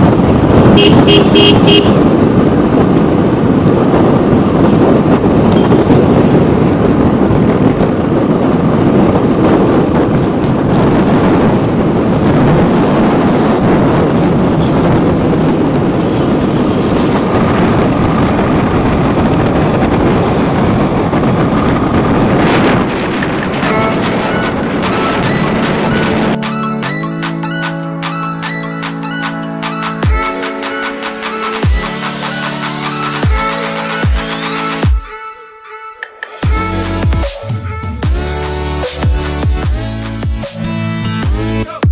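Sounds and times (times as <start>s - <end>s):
wind on microphone: 0.0s - 27.2s.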